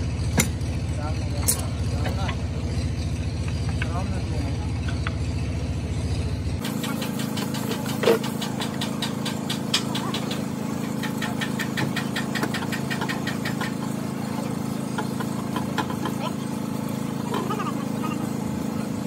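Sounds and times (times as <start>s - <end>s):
low machine hum: 0.0s - 19.0s.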